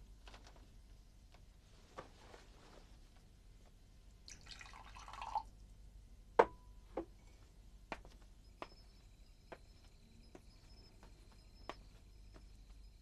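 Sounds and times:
liquid poured into a glass: 4.3 - 5.5.

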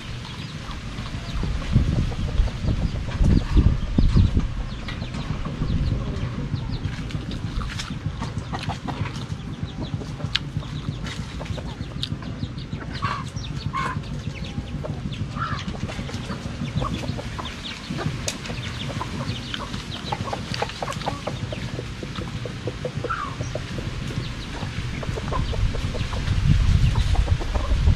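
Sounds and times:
chickens clucking: 0.0 - 27.9
steady low hum: 0.0 - 27.9
crunching and chewing food: 6.8 - 12.4.

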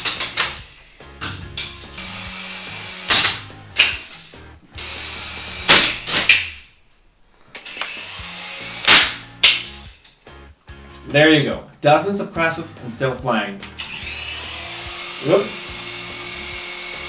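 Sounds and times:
toy helicopter rotors whirring: 13.8 - 17.0.

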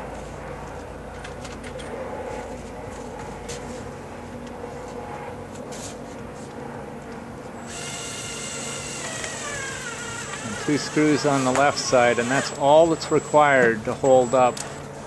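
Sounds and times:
steady low hum: 0.0 - 15.0
power drill driving a screw: 7.7 - 14.2.

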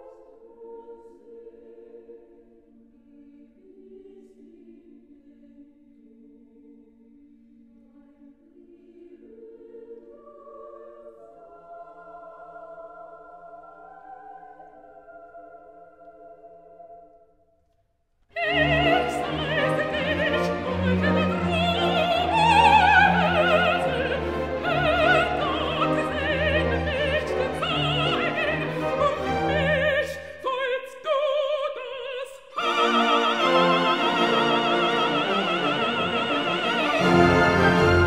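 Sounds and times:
operatic soprano singing: 8.0 - 17.2, 18.3 - 38.0
orchestra playing: 18.4 - 30.1, 32.6 - 38.0.

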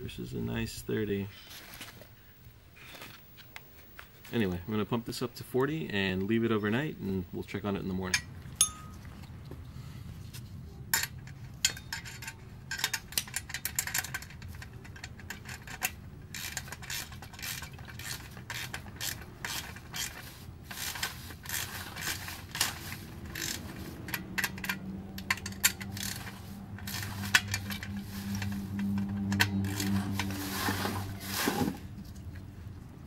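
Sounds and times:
metallic clicks and rattles: 10.9 - 30.4
low hum: 21.8 - 33.0.

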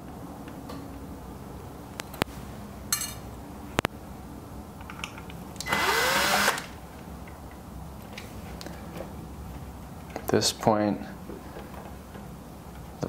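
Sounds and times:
powered screwdriver whirring: 5.6 - 6.8.

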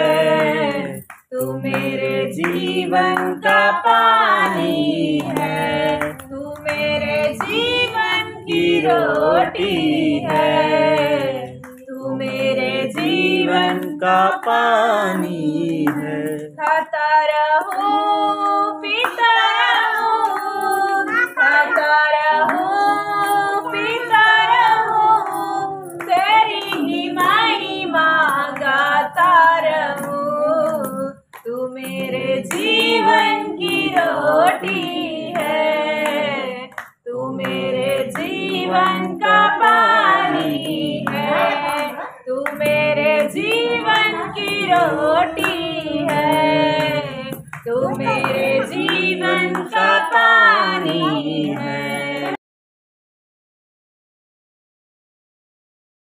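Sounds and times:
devotional song singing: 0.0 - 52.4
light percussive beat: 37.2 - 51.8.

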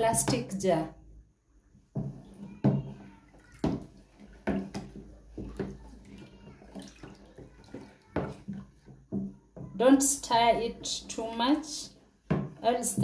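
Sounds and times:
liquid sloshing: 1.8 - 13.0
spoon knocking on plastic tub: 1.9 - 13.0.

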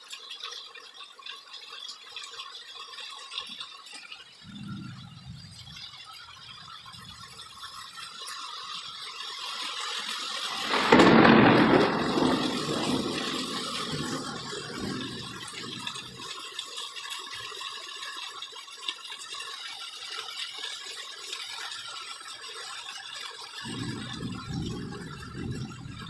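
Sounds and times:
low rumble: 4.4 - 7.6, 23.7 - 26.0
heavy rain hissing: 4.4 - 16.6, 23.6 - 26.0.

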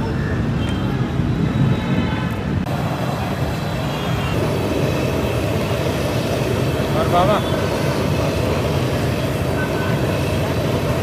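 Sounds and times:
passing vehicles: 0.0 - 11.0.

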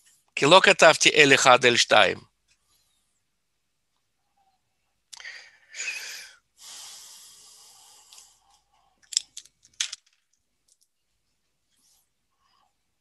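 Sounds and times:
breath noise on microphone: 5.2 - 9.0.

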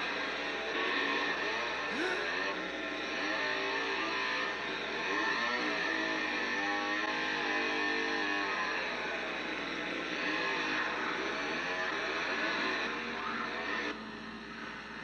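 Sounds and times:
chainsaw revving: 0.3 - 8.9.

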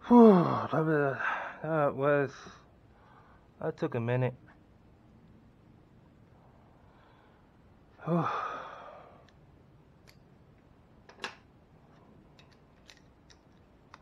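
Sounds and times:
man sighing: 0.0 - 1.7, 8.0 - 9.3.

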